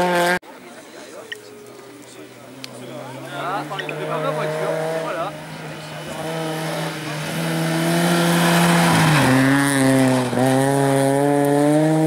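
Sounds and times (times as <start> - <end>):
rally car engine at high revs: 0.0 - 0.4, 3.0 - 12.0.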